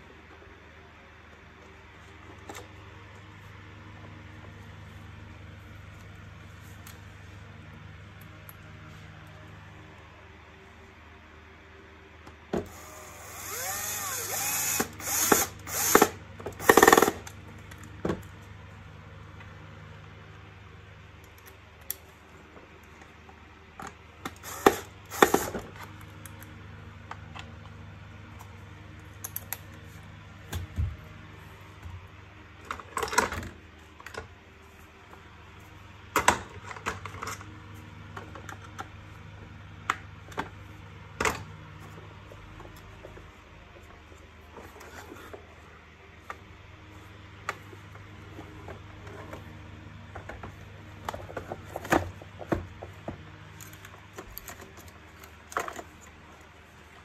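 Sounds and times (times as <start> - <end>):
cordless drill driving screws: 12.7 - 17.2, 24.4 - 25.6.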